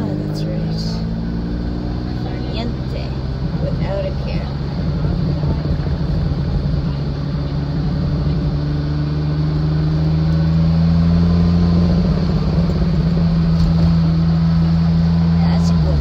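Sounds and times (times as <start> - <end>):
car engine heard from cabin: 0.0 - 16.0.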